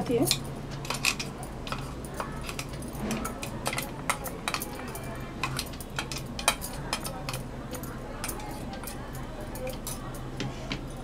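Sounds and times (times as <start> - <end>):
glass bangles jingling: 0.0 - 11.0.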